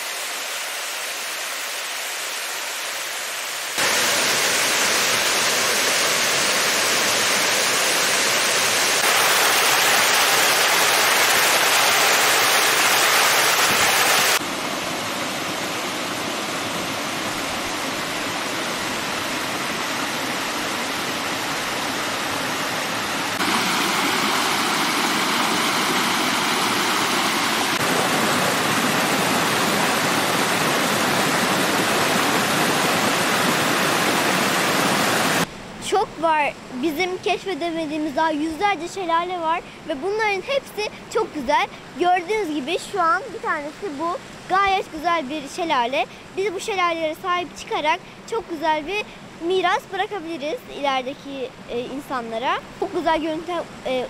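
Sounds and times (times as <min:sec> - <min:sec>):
waterfall rushing: 0:00.0 - 0:35.5.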